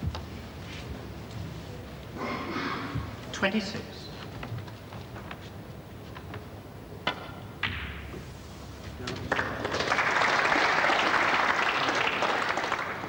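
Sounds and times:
snooker balls clicking: 6.3s - 8.3s
cue striking ball: 7.0s - 8.3s
audience applause: 9.2s - 13.0s.

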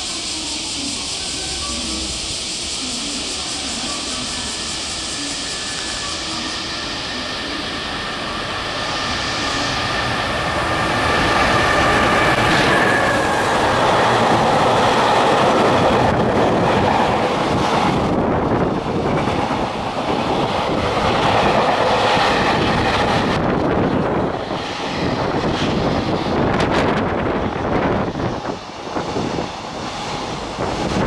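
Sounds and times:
thin high tone: 0.0s - 10.2s
train wheels on rails: 0.0s - 31.0s.

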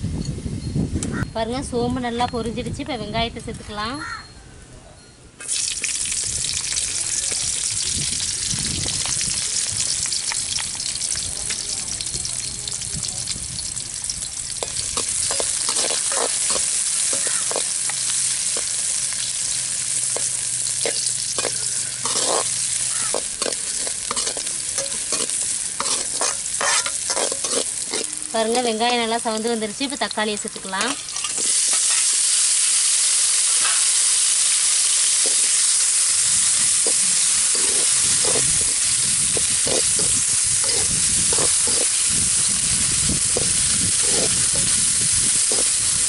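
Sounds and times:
onions sizzling in hot oil: 5.4s - 46.0s
metal spatula scraping pan: 14.6s - 17.7s, 20.2s - 28.8s, 30.5s - 32.1s, 36.8s - 42.1s, 43.4s - 44.8s.

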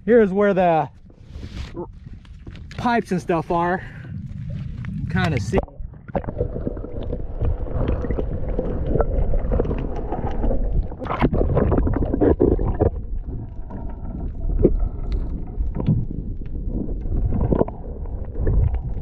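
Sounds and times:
muffled underwater rumble: 0.0s - 19.0s
knocks and crackles: 1.8s - 14.0s.

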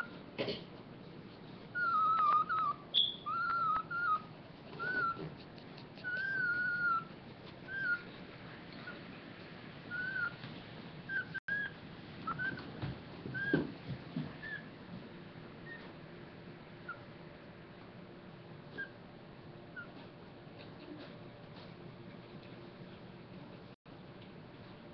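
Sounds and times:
puppy whimpering squeals: 0.0s - 0.2s, 1.7s - 8.1s, 9.9s - 10.4s, 11.1s - 12.7s, 13.4s - 13.6s, 14.4s - 14.7s, 18.7s - 19.0s, 19.7s - 20.0s.

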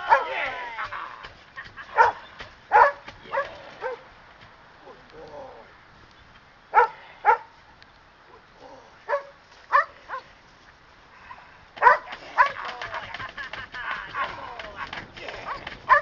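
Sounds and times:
dog barking: 1.9s - 4.0s, 6.7s - 7.5s, 9.1s - 10.3s, 11.8s - 12.7s, 15.5s - 16.0s.

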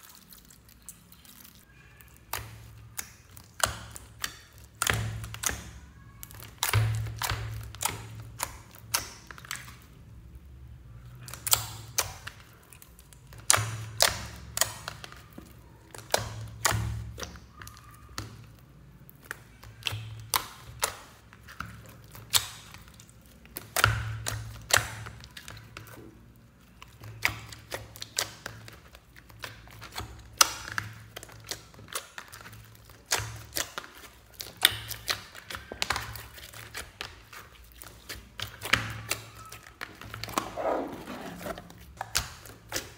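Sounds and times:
slime wet clicks and pops: 11.2s - 12.4s.

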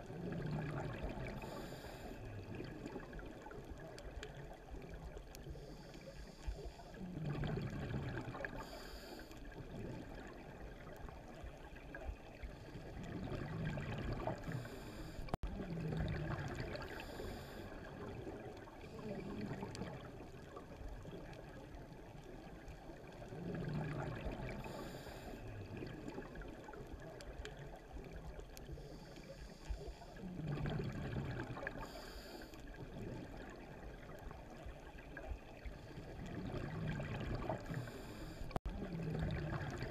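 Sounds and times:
gurgling exhaled bubbles: 0.0s - 5.7s, 6.7s - 29.1s, 29.8s - 39.9s
diver breathing through regulator: 1.4s - 2.4s, 8.4s - 9.4s, 14.4s - 15.4s, 16.8s - 17.8s, 24.6s - 25.6s, 31.7s - 32.7s, 37.6s - 38.6s.

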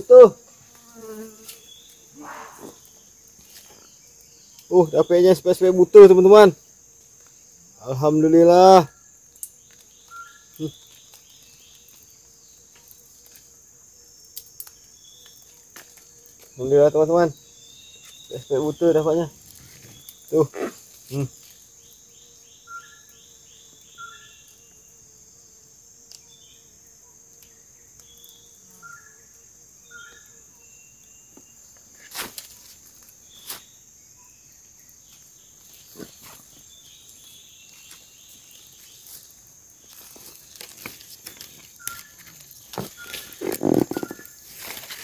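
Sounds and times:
insect hum: 0.0s - 45.0s
short bird calls: 42.9s - 44.4s.

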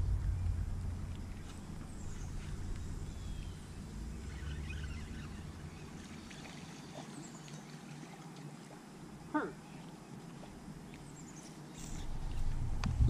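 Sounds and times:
water lapping at hull: 0.0s - 12.6s.

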